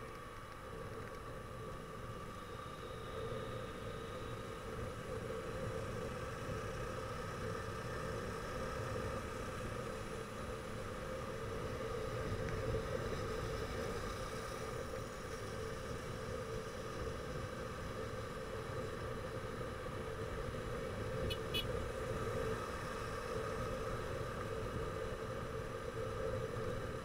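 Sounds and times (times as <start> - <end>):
road noise: 0.0 - 27.0
motorcycle engine humming: 21.0 - 22.1.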